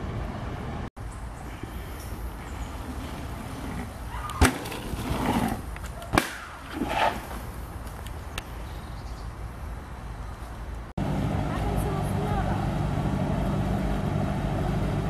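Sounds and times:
tyres rolling on dirt: 1.5s - 8.2s.

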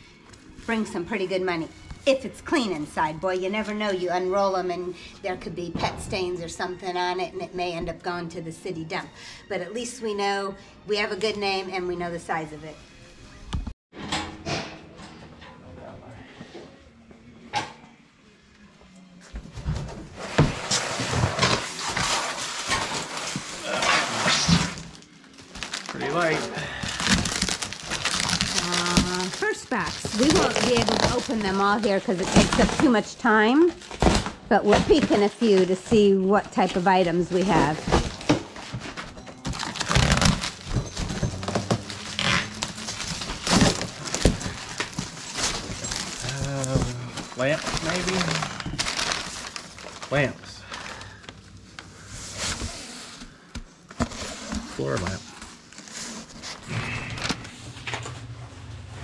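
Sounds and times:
rustling and scraping of goods: 19.1s - 59.0s.

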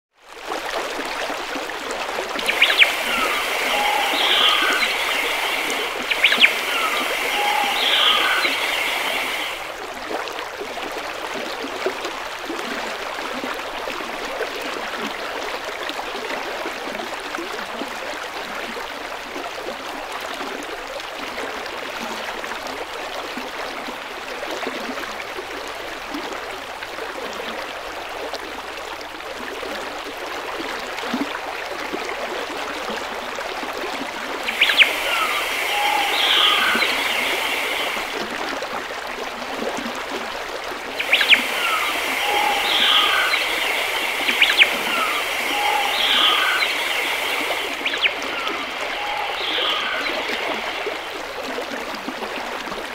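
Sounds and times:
running water: 0.2s - 18.8s, 31.2s - 52.9s
songbird calling: 2.4s - 9.7s, 34.4s - 38.3s, 40.9s - 51.5s.

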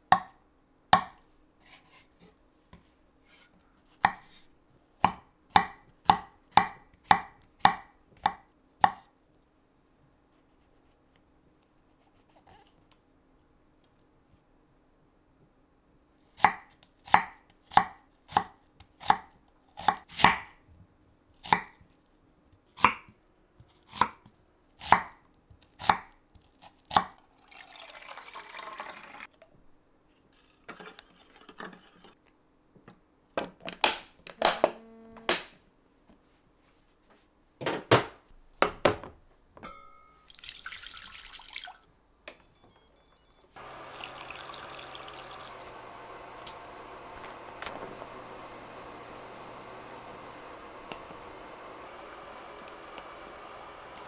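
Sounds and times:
knife chopping on cutting board: 5.0s - 9.0s, 16.4s - 20.5s.

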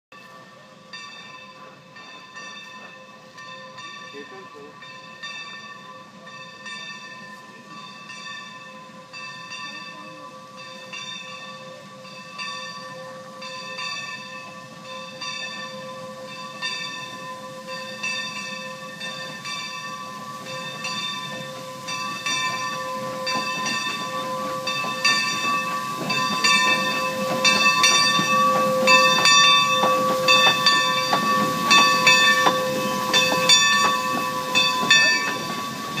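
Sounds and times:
locomotive bell ringing: 0.1s - 36.0s
steam hiss: 0.2s - 36.0s
steam exhaust chuffs: 11.8s - 36.0s.

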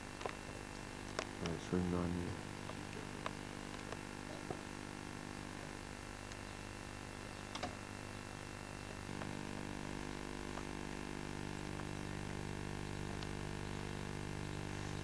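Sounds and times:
steady low hum: 0.0s - 15.0s
faint ticks: 10.4s - 10.8s.

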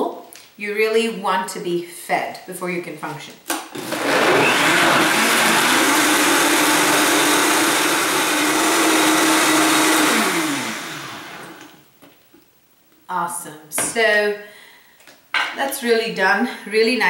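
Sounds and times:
blender motor running: 3.8s - 11.8s.

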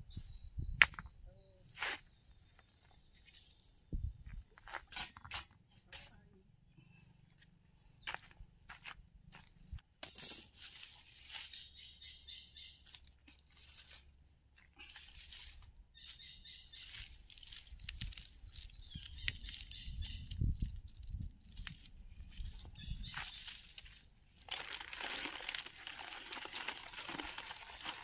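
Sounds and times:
rustling and crinkling handling: 10.2s - 11.8s, 12.8s - 28.0s.

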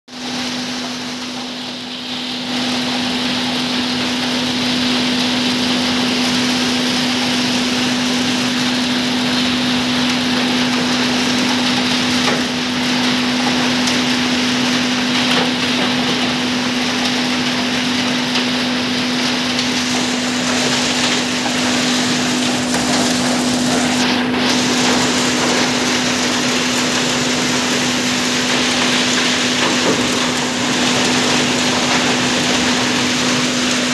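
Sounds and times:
conveyor carrying crushed stone: 0.2s - 33.9s.

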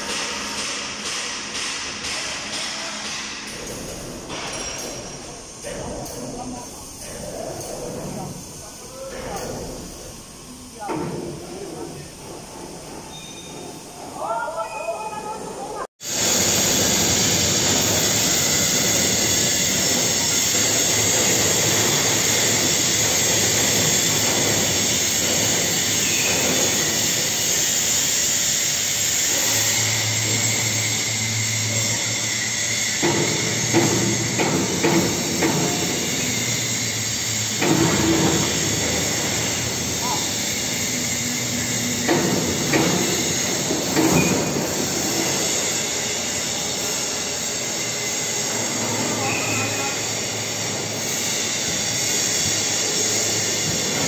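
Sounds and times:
overhead crane rumbling hiss: 0.0s - 14.4s, 15.6s - 54.0s
metal clanks and knocks: 0.1s - 6.4s, 37.4s - 39.6s.

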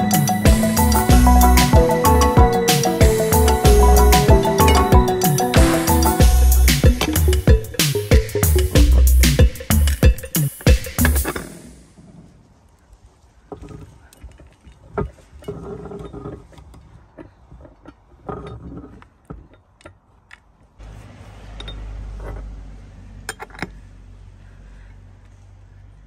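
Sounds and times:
metal clinks and scraping: 13.6s - 19.7s, 21.4s - 22.5s, 23.2s - 23.8s.

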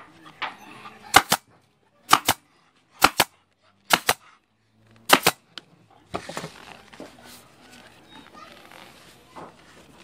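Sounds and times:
staple gun firing: 1.1s - 1.4s, 2.1s - 2.4s, 3.0s - 3.3s, 3.9s - 4.2s, 5.1s - 5.4s
rustling and handling noise: 4.4s - 10.0s.

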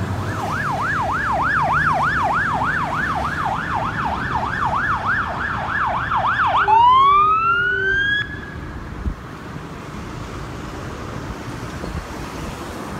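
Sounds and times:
road traffic noise: 0.0s - 12.9s
mechanical siren wailing: 0.3s - 8.7s
electronic siren yelping: 0.4s - 8.7s.

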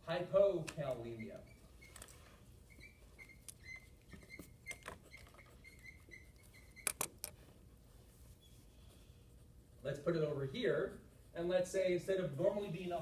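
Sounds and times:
marker squeaking on whiteboard: 0.8s - 7.4s
sharp clicks: 6.8s - 7.4s.

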